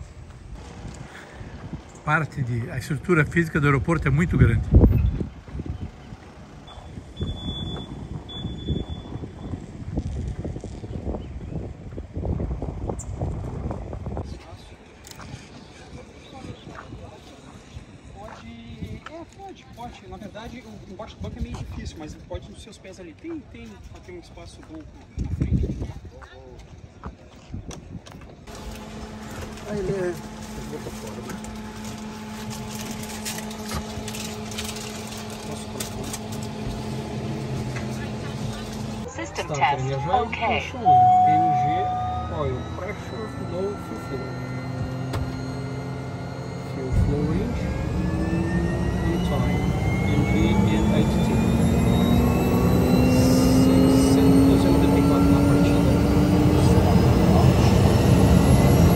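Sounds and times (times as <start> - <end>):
wind buffeting microphone: 4.3 - 18.1
mechanical hum: 28.5 - 40.2
high-pitched whine: 28.5 - 58.9.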